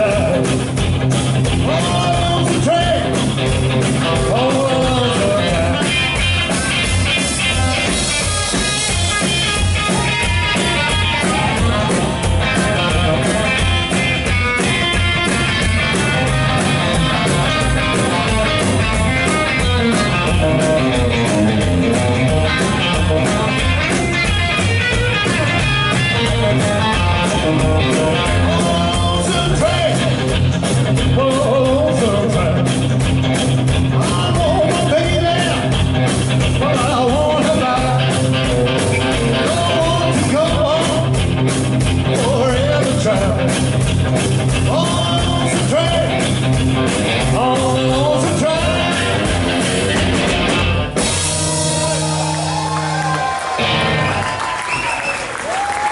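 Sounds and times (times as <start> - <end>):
man singing: 0.0 - 0.6, 1.6 - 3.2, 4.0 - 6.0, 27.9 - 30.2, 31.0 - 32.8, 33.9 - 35.8, 36.5 - 38.4, 39.2 - 41.2, 42.1 - 43.6, 44.6 - 46.2, 47.2 - 50.0
upright double bass: 0.0 - 54.8
drum kit: 0.0 - 55.9
electric guitar: 0.0 - 55.9.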